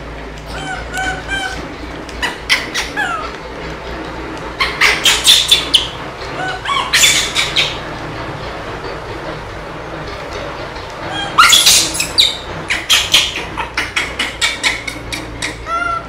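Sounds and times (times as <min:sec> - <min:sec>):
baby monkey squealing: 0:00.5 - 0:01.6, 0:04.6 - 0:07.8, 0:11.1 - 0:16.0.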